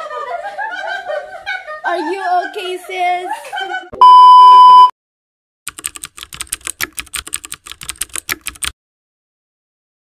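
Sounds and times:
test-pattern beep: 0:04.0 - 0:04.9
keyboard typing clicks: 0:05.7 - 0:08.8.

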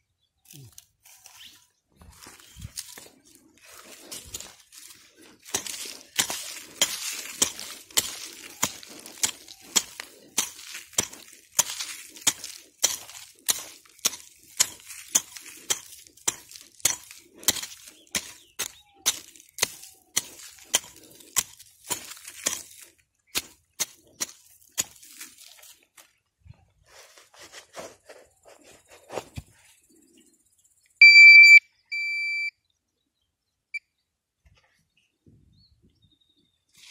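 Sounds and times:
pick striking stony soil: 0:00.5 - 0:26.2.

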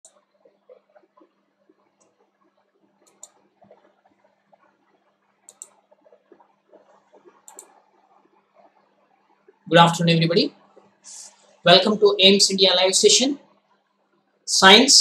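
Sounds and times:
computer mouse clicks: 0:02.0 - 0:09.3.

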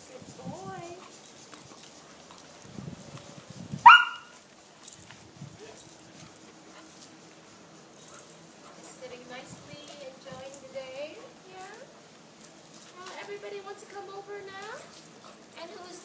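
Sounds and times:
puppy yelping: 0:03.8 - 0:04.4.

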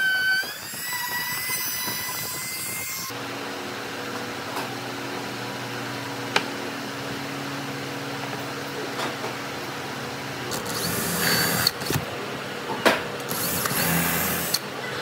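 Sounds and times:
drill boring into wood: 0:10.5 - 0:12.0, 0:13.3 - 0:14.6.

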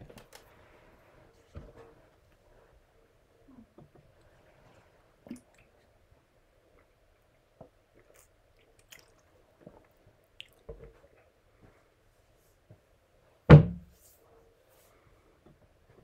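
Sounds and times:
loud thump: 0:13.5 - 0:13.9.

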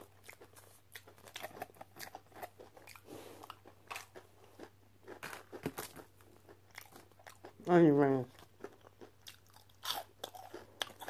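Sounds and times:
crunchy food chewing: 0:00.0 - 0:11.0.

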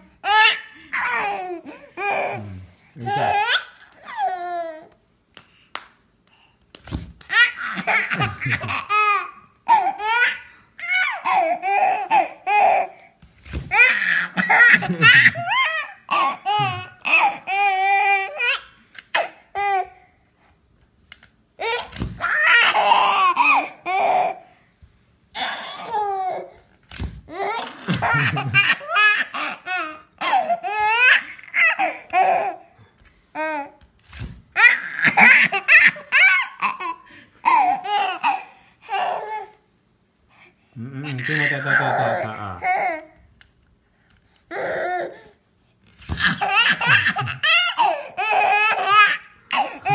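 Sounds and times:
baby laughing: 0:07.3 - 0:12.9, 0:13.7 - 0:19.9, 0:21.6 - 0:24.4, 0:27.3 - 0:32.6, 0:34.6 - 0:39.3, 0:41.0 - 0:43.1, 0:46.1 - 0:49.9.

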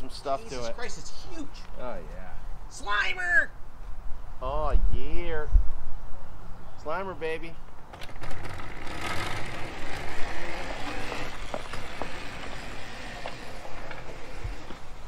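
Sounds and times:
frame rattling: 0:07.9 - 0:15.0
tyres rolling on grass: 0:07.9 - 0:15.0.

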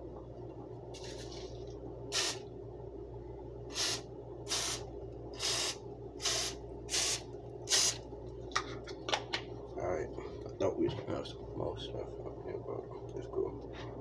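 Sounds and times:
aerosol spray hissing: 0:02.1 - 0:02.4, 0:03.7 - 0:04.8, 0:05.4 - 0:08.0.

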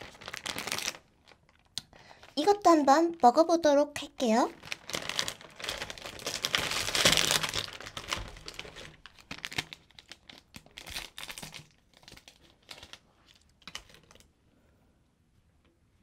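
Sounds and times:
foil wrapper tearing and crinkling: 0:00.0 - 0:01.7, 0:04.5 - 0:14.2.

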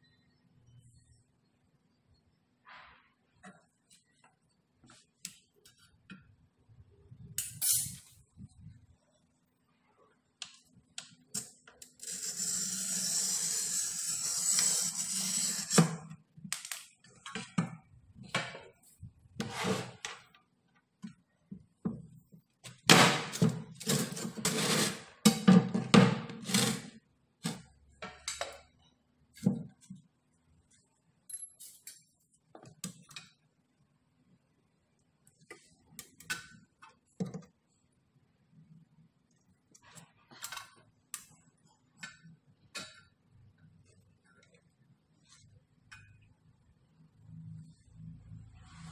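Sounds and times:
glass cutter scratching stone: 0:12.0 - 0:15.9, 0:23.8 - 0:25.1.

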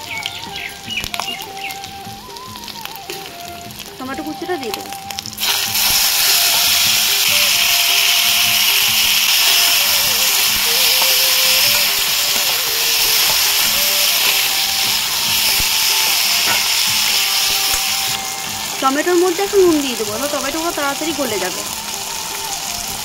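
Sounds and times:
tomatoes sizzling in hot oil: 0:00.0 - 0:23.0
metal spatula stirring: 0:05.4 - 0:18.8.

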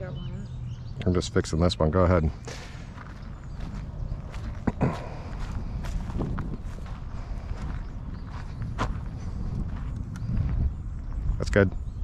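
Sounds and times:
footsteps on dry grass: 0:02.5 - 0:11.2.

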